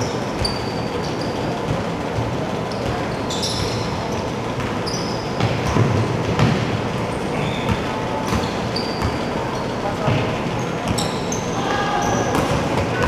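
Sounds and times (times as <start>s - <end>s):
large hall noise: 0.0s - 13.0s
sneaker squeaks: 0.0s - 13.0s
basketball bouncing on hardwood: 5.4s - 6.8s.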